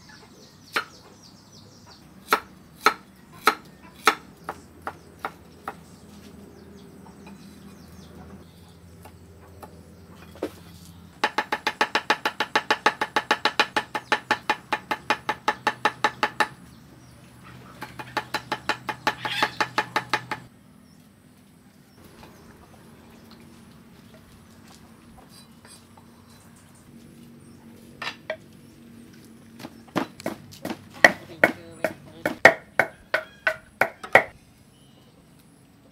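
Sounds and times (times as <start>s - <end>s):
cleaver chopping on wooden block: 2.2s - 5.8s, 11.2s - 16.6s, 17.8s - 20.5s, 29.6s - 34.3s.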